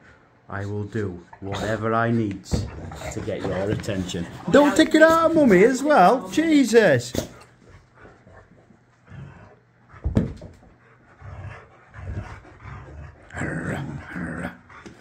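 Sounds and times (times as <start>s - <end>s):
dog grumbling: 1.4s - 4.7s, 11.1s - 15.0s
thump: 10.0s - 10.7s.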